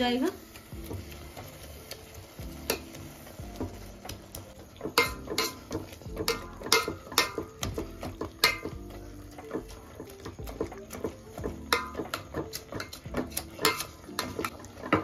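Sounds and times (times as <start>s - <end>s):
spoon scraping and clinking in pot: 4.9s - 15.0s.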